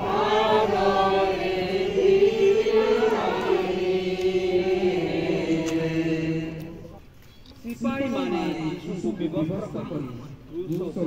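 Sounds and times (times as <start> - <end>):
group singing a hymn: 0.0 - 7.0, 7.8 - 9.6.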